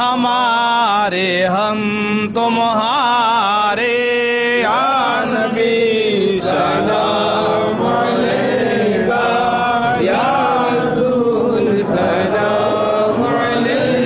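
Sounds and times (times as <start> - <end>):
person singing devotional song: 0.0 - 14.0.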